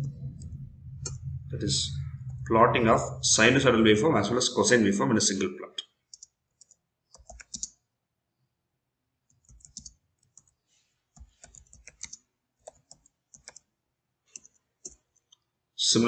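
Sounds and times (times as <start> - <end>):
keyboard keystroke clicks: 6.2 - 7.7.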